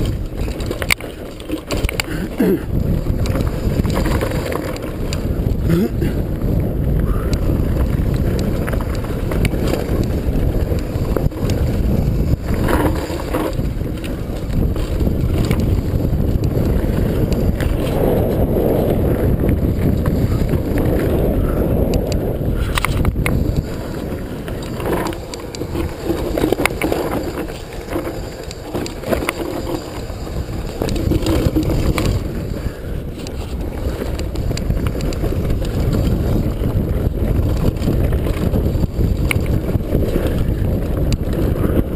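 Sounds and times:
bike tyres rumbling on dirt: 0:00.0 - 0:41.9
wind buffeting microphone: 0:00.0 - 0:41.9.

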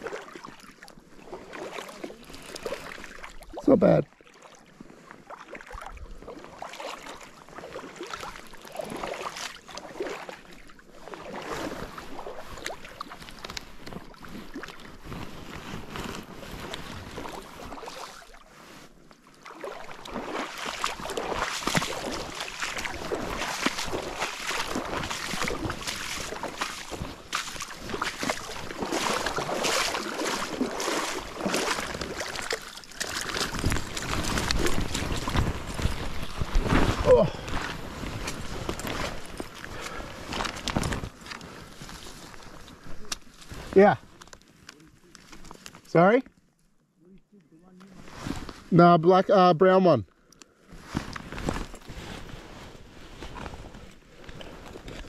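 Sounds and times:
fish splashing in water: 0:05.3 - 0:13.4, 0:19.4 - 0:37.2.

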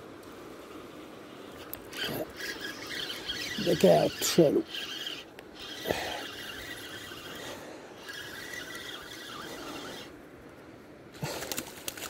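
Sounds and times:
fishing reel whirring: 0:01.4 - 0:10.2
reel scraping and clicking: 0:01.5 - 0:10.2.

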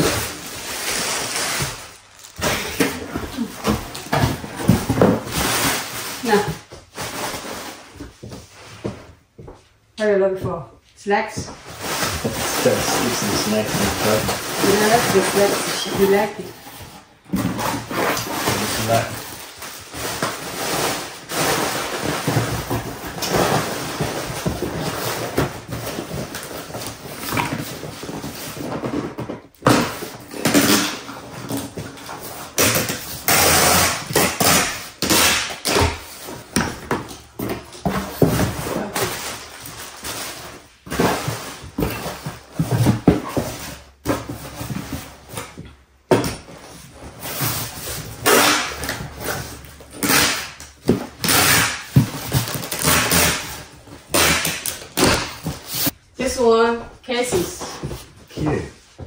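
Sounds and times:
packing tape tearing: 0:00.0 - 0:07.4, 0:17.5 - 0:28.7, 0:29.6 - 0:36.7, 0:47.2 - 0:56.0.

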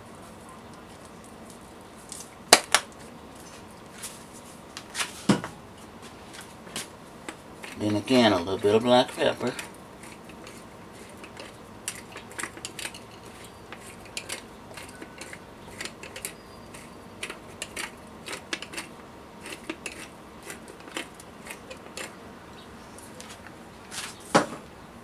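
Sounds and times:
pepper mill grinding: 0:07.2 - 0:22.2.

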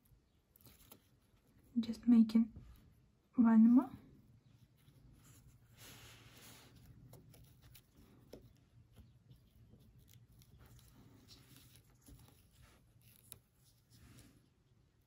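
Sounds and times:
faint rustling: 0:03.9 - 0:15.0.

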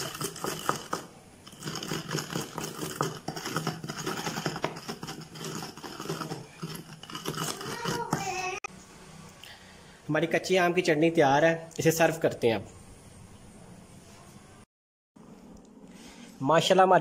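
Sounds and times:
pestle pounding in stone mortar: 0:00.0 - 0:08.4.

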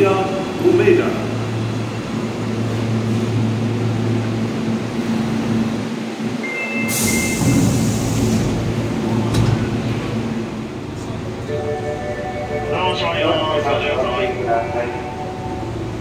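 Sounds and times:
train electric hum: 0:00.0 - 0:16.0
air hiss: 0:06.9 - 0:08.5.

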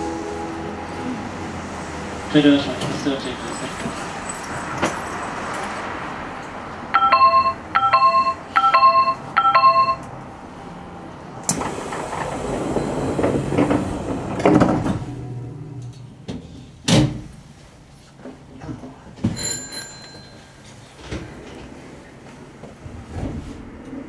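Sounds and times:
electronic train door chime: 0:06.9 - 0:10.1
train doors thumping: 0:11.5 - 0:17.5.

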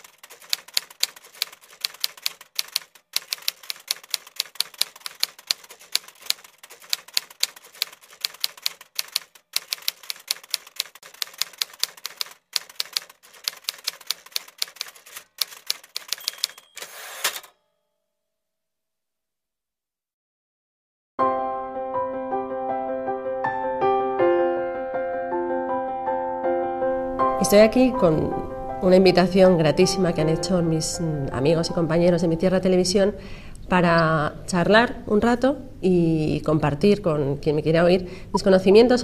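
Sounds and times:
typewriter keys clacking: 0:00.0 - 0:17.5
typewriter carriage return rattle: 0:00.0 - 0:17.6
typewriter bell ringing: 0:12.8 - 0:17.6.

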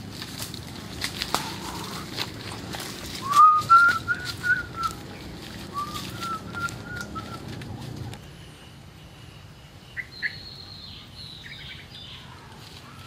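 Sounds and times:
footsteps in leaf litter: 0:00.0 - 0:08.3, 0:12.0 - 0:13.0
clear whistled notes: 0:03.2 - 0:05.0, 0:05.7 - 0:07.5.

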